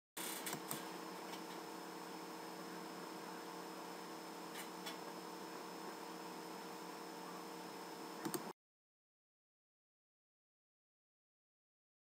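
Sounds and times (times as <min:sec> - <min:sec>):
electrical hum: 0:00.2 - 0:08.6.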